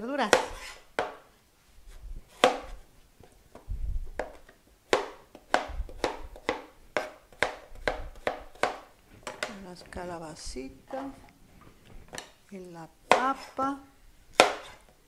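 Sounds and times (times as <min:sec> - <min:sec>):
knife chopping on plastic board: 0:00.2 - 0:01.3, 0:02.3 - 0:02.8, 0:03.5 - 0:09.6, 0:13.1 - 0:13.5, 0:14.4 - 0:15.0.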